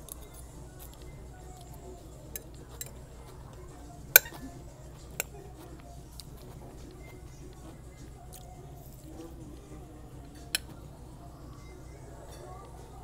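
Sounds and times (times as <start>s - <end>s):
low background hum: 0.0s - 13.0s
fork clinking against plate: 0.1s - 3.4s, 4.1s - 9.1s, 10.2s - 10.8s.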